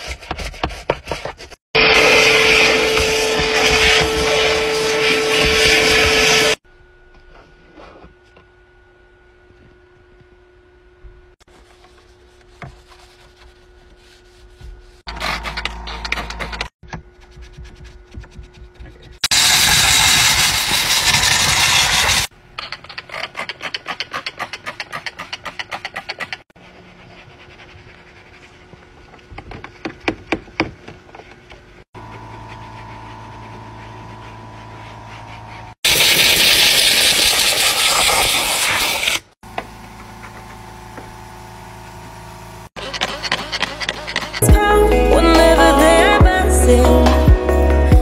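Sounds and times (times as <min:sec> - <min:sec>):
brush scrubbing: 0:00.0 - 0:06.6, 0:11.5 - 0:30.4, 0:32.0 - 0:39.3, 0:42.8 - 0:44.4
cleaning machine humming: 0:01.8 - 0:06.6, 0:32.0 - 0:38.2, 0:39.4 - 0:44.6
loud hiss bursts: 0:19.2 - 0:22.3, 0:35.9 - 0:39.3.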